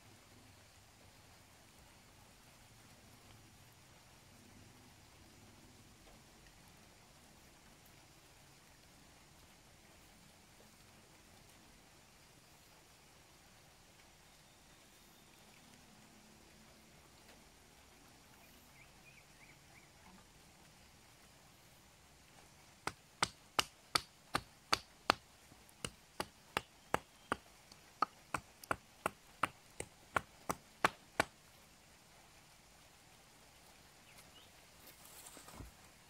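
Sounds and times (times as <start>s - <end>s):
wooden stick knocking on wood: 28.0s - 31.3s.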